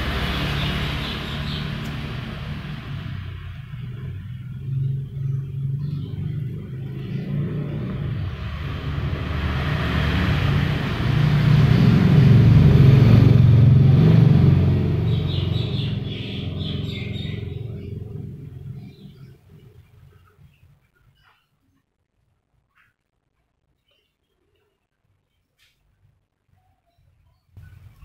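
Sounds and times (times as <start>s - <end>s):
motor vehicle passing rumble: 0.0s - 20.9s, 27.6s - 28.0s.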